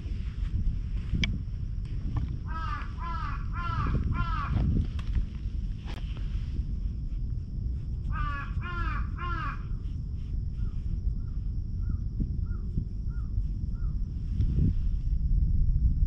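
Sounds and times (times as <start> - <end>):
steady low rumble: 0.0 - 16.0
crow cawing: 2.5 - 4.7, 8.1 - 9.8
faint small bird call: 8.1 - 9.9.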